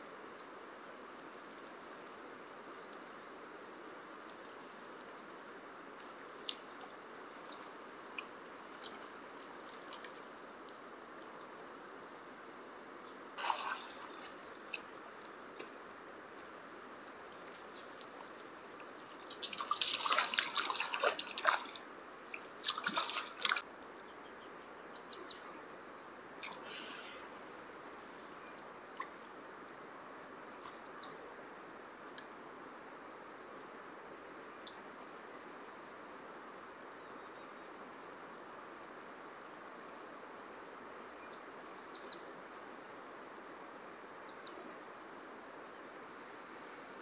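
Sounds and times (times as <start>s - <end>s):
water splashing: 6.0s - 11.7s, 13.4s - 15.8s, 16.4s - 23.6s
water dripping: 6.0s - 11.8s, 13.4s - 24.1s
river water rushing: 13.2s - 23.6s.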